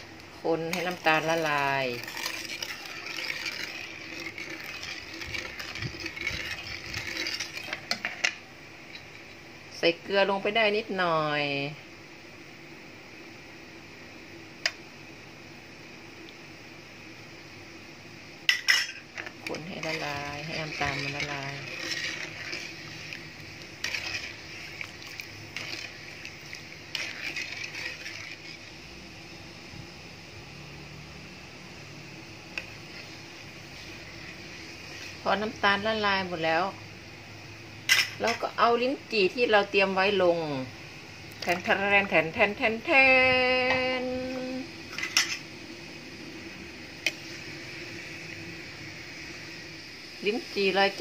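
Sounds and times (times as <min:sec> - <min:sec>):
water boiling and bubbling: 0:00.0 - 0:09.7, 0:18.0 - 0:43.5, 0:44.1 - 0:51.0
metal ladle stirring: 0:00.4 - 0:08.4, 0:18.5 - 0:28.8.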